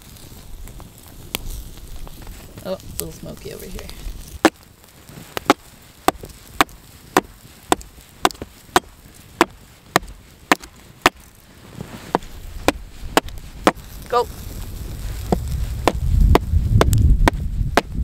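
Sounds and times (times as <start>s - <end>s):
hatchet chopping log: 5.4s - 11.2s, 12.1s - 13.8s, 15.3s - 18.0s.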